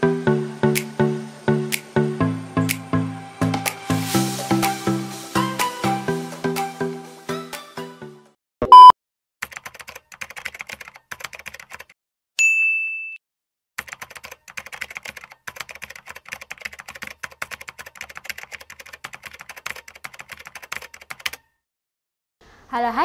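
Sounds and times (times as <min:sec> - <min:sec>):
fast typing on a keyboard: 0:09.4 - 0:12.0, 0:13.8 - 0:21.5
bright ding: 0:12.4 - 0:13.2.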